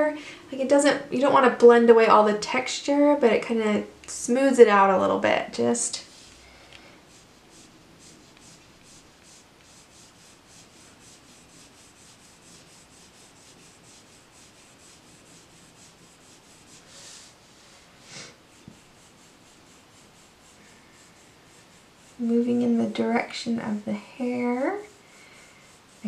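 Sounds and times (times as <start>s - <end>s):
pencil scratching on paper: 5.9s - 26.0s.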